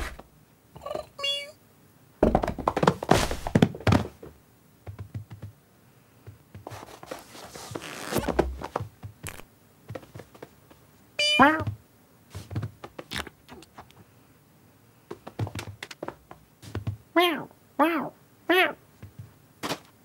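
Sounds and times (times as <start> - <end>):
cartoon cat vocal sound: 0.8 - 1.6, 11.2 - 11.7, 17.2 - 18.8
thumps and scuffles: 2.2 - 5.6, 6.2 - 10.8, 11.4 - 13.9, 15.1 - 17.0, 19.0 - 20.0
scratchy rustling: 6.6 - 9.4.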